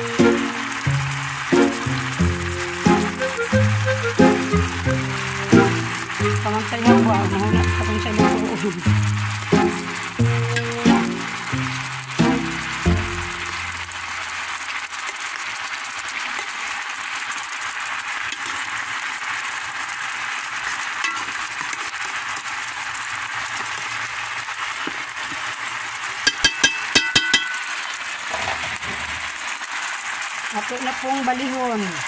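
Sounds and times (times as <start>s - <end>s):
chicken sizzling in oil: 0.0s - 32.0s
spoon clinking against pot: 26.3s - 27.8s.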